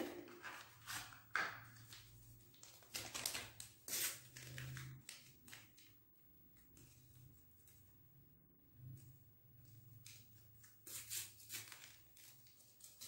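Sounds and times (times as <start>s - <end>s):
paper sachet crinkling and tearing: 1.8s - 5.9s, 10.8s - 13.0s.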